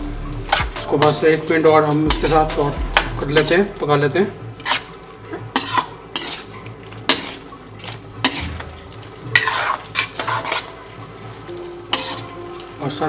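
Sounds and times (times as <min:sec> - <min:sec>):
sauce sizzling: 0:00.0 - 0:13.0
spatula scraping metal pan: 0:00.4 - 0:03.7, 0:04.6 - 0:07.5, 0:08.2 - 0:08.7, 0:09.3 - 0:10.8, 0:11.9 - 0:12.4.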